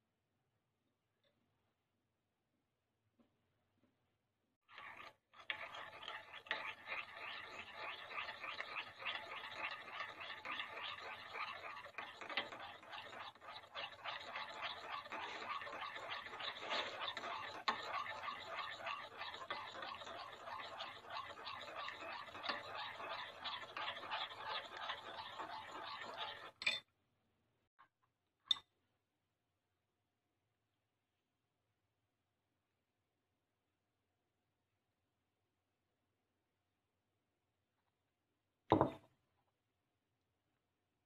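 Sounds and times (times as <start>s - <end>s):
spoon stirring in ceramic bowl: 4.7s - 26.8s.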